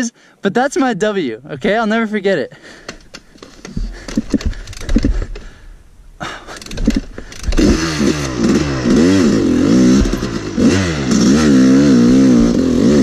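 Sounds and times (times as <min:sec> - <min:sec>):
knocks and bumps: 0:02.8 - 0:11.4
dirt bike engine revving: 0:06.5 - 0:13.0.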